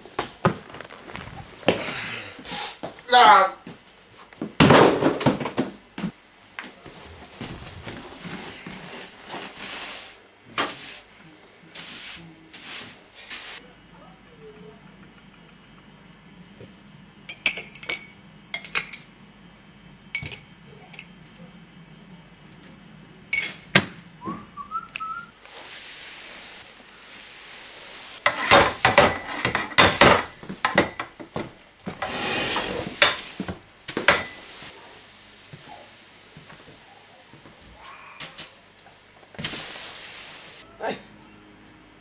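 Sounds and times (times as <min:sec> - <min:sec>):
broom sweeping: 0:06.9 - 0:13.7, 0:25.4 - 0:28.9, 0:34.3 - 0:36.9, 0:39.4 - 0:40.6
short rising whistle: 0:24.2 - 0:25.3.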